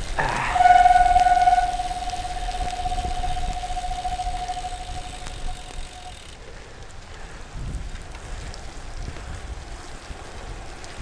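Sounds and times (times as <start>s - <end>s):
wind on microphone: 0.0s - 6.2s
bicycle disc brakes squealing: 0.0s - 6.4s.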